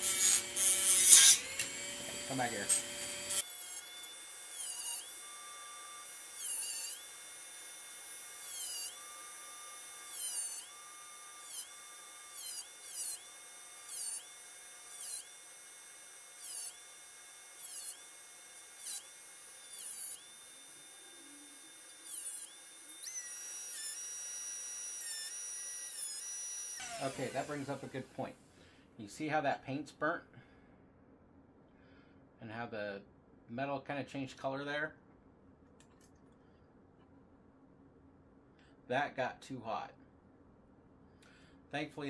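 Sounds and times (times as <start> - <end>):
rotary tool cutting steel: 0.0 - 28.2.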